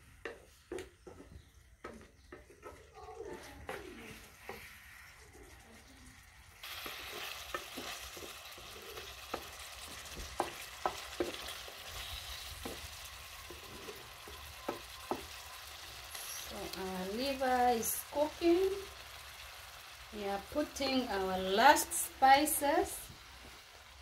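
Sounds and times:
wooden spoon knocking on pan: 0:00.2 - 0:03.8, 0:06.8 - 0:15.9, 0:20.7 - 0:21.2
liver sizzling in a pan: 0:06.2 - 0:24.0.

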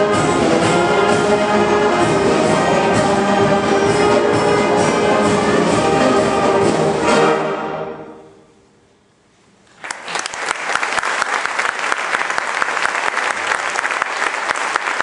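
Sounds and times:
band chord reverberating: 0:00.0 - 0:08.1
audience applauding: 0:09.7 - 0:15.0.

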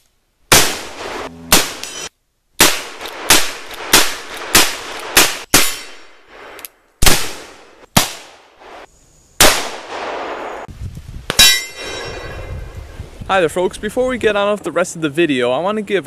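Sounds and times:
revolver gunshots: 0:00.5 - 0:06.2, 0:07.0 - 0:08.6, 0:09.4 - 0:10.7.

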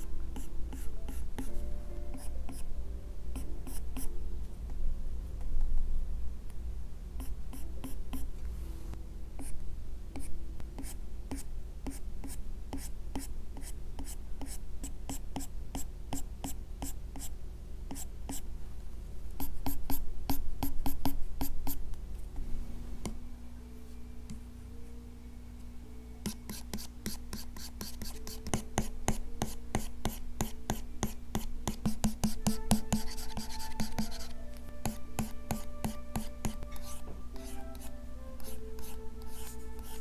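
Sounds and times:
stylus scratching on screen: 0:31.8 - 0:40.0.

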